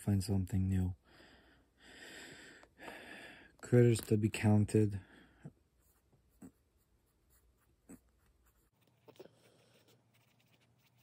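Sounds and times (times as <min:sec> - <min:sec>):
pencil scratching on paper: 0:05.8 - 0:11.0.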